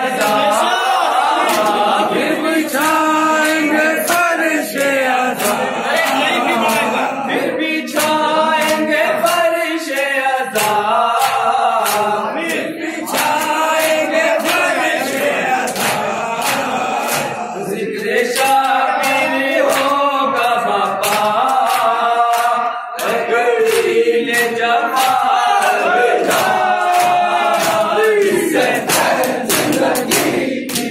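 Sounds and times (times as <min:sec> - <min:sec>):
men chanting into microphones: 0:00.0 - 0:30.9
hand-slaps on chest: 0:26.2 - 0:30.9.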